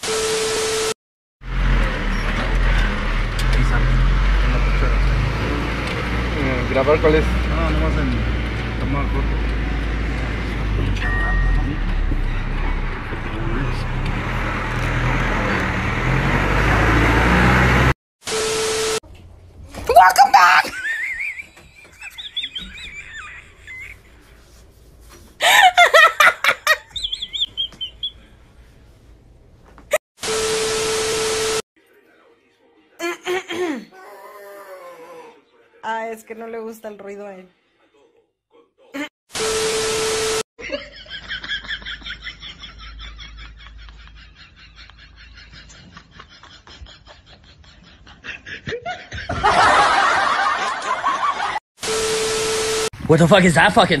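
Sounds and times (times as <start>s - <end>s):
person laughing: 20.0s - 24.3s, 25.4s - 28.1s, 33.0s - 33.9s, 40.6s - 50.5s
bird whistling: 26.9s - 28.2s
bird squawking: 26.9s - 28.3s.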